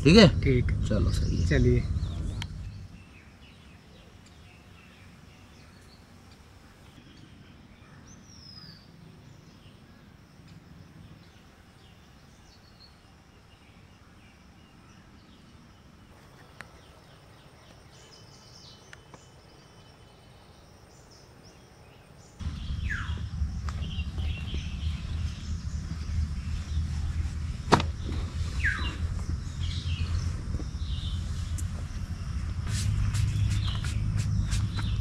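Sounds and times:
heavy low rumble: 0:00.0 - 0:03.2, 0:22.4 - 0:35.0
faint bird chirps: 0:00.0 - 0:35.0
falling whistled bird call: 0:22.4 - 0:32.0.

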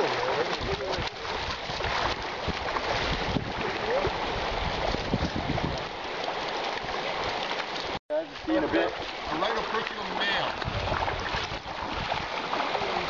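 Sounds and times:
creek water rushing: 0:00.0 - 0:13.0.

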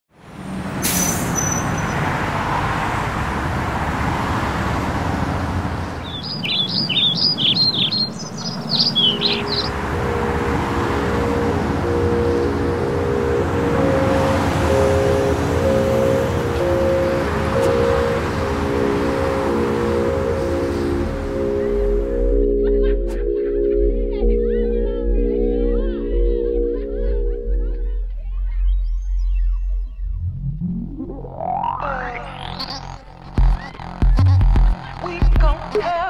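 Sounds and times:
street noise: 0:00.1 - 0:25.2, 0:26.1 - 0:36.0
bird chirping: 0:05.9 - 0:09.8
music of held chords: 0:09.1 - 0:28.0.

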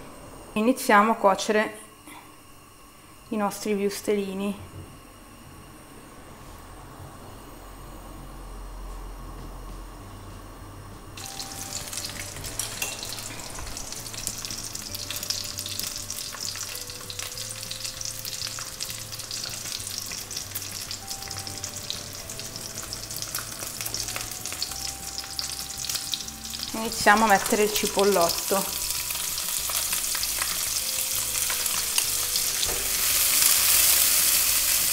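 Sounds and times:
sausages sizzling in hot oil: 0:11.2 - 0:34.9.

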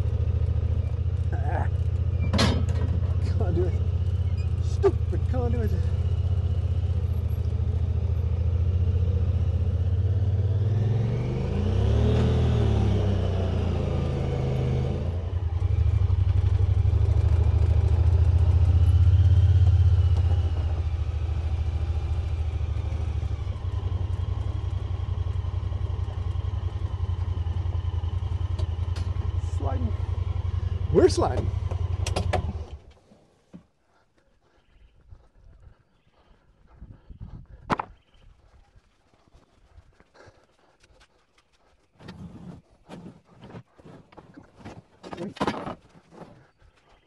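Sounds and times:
utility vehicle engine under load: 0:00.0 - 0:33.6.

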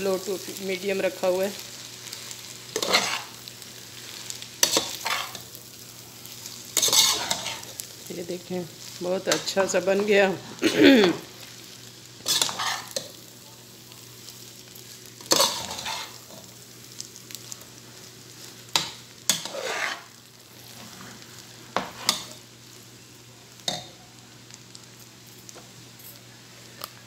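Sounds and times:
faint sizzle: 0:00.0 - 0:27.0
metal spoon scraping in pot: 0:02.8 - 0:03.3, 0:06.8 - 0:07.8, 0:12.3 - 0:13.0, 0:15.3 - 0:16.2, 0:19.3 - 0:20.1.

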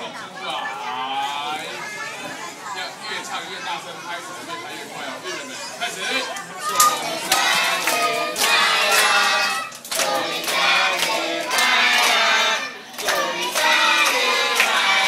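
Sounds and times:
crowd singing together: 0:06.6 - 0:15.0
people clapping in time: 0:06.6 - 0:15.0.

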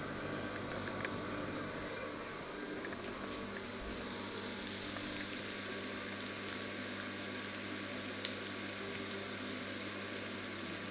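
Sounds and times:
steady low hum: 0:00.0 - 0:06.9
steaks sizzling in a pan: 0:03.1 - 0:10.9.

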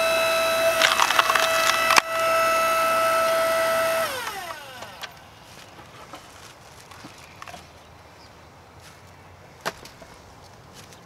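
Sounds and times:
electric motor whine: 0:00.0 - 0:05.5.

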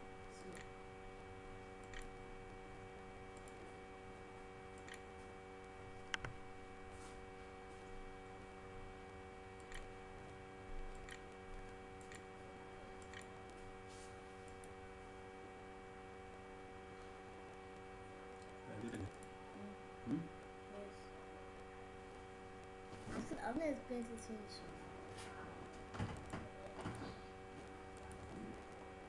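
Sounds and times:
steady low hum: 0:00.0 - 0:29.0
faint computer mouse clicks: 0:01.8 - 0:02.1, 0:09.6 - 0:09.9.

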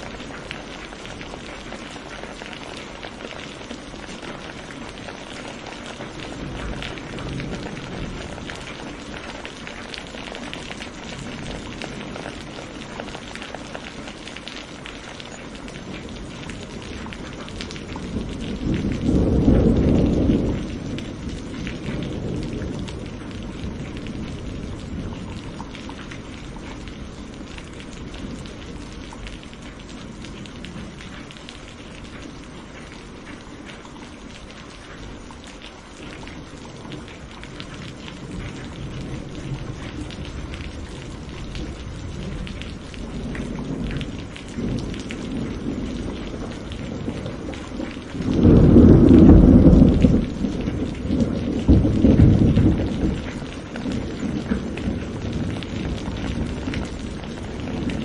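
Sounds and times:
rain falling on leaves: 0:00.0 - 0:58.0
thunder rolling: 0:04.3 - 0:13.2, 0:15.8 - 0:31.2, 0:36.9 - 0:58.0.

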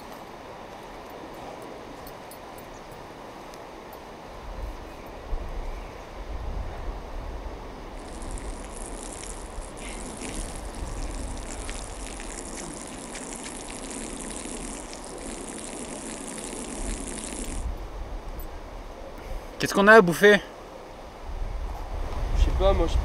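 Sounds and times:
person urinating onto ground: 0:08.0 - 0:17.7.

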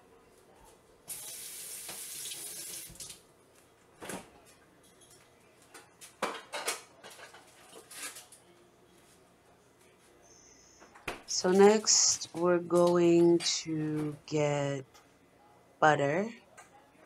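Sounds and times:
sink tap running: 0:01.1 - 0:03.1.

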